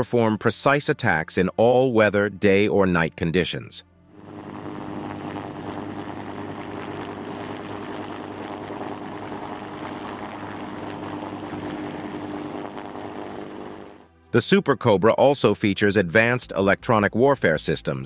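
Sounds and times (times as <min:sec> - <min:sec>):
helicopter hovering: 0:04.2 - 0:14.1.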